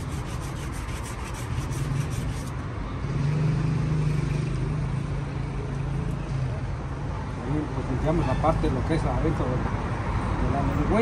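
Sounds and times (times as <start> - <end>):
quick scratching strokes: 0.0 - 2.6
street traffic: 0.0 - 11.0.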